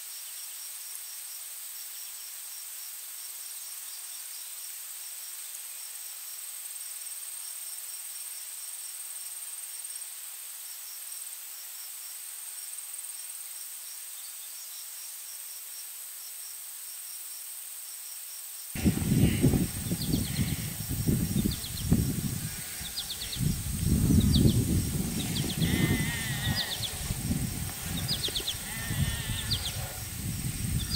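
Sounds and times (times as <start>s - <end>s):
crickets chirping: 0.2s - 30.9s
high-pitched drone and hiss: 18.8s - 30.9s
uneven low rumbling: 18.8s - 30.9s.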